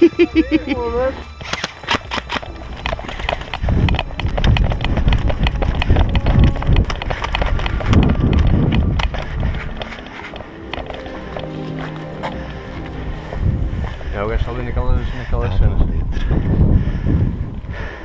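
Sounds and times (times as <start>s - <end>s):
footsteps running through grass: 1.3s - 14.2s.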